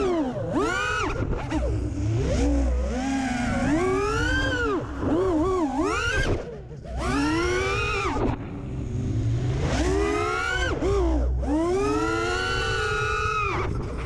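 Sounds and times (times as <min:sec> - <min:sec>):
drone motors whining: 0:00.0 - 0:14.0
wind rumble on camera: 0:12.9 - 0:14.0.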